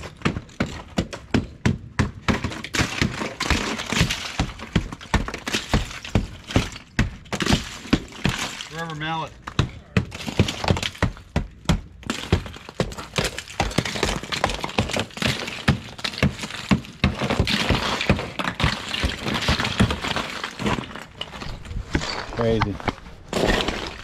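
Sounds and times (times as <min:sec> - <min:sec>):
rubber mallet thudding on ice: 0:00.0 - 0:08.8, 0:09.4 - 0:21.0
ice cracking and shattering: 0:02.3 - 0:09.3, 0:12.0 - 0:22.4, 0:23.3 - 0:24.0.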